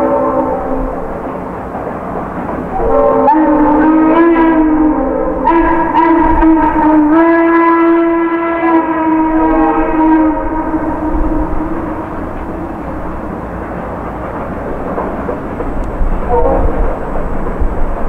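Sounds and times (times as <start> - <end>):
steam locomotive whistle: 0.0 - 1.6, 2.6 - 13.3, 15.8 - 17.4
locomotive exhaust chuffing: 0.0 - 18.0
train running noise: 0.0 - 18.0.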